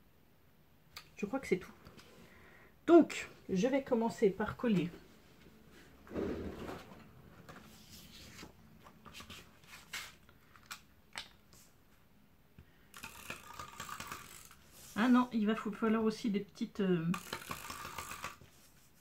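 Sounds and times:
paper rustling: 0:07.4 - 0:10.8
glue roller rasping: 0:12.9 - 0:15.0, 0:17.2 - 0:18.5.

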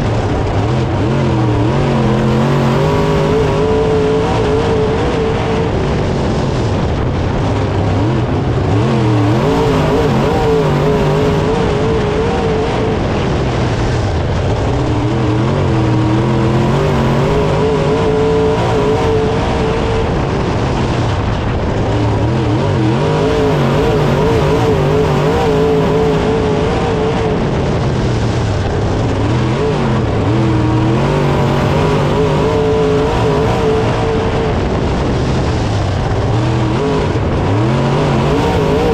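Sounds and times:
racing car engine: 0:00.0 - 0:38.9.

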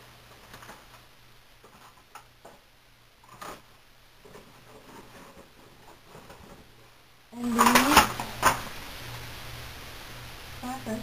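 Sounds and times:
objects clicking and knocking: 0:00.3 - 0:01.0, 0:01.6 - 0:02.6, 0:03.2 - 0:06.8.

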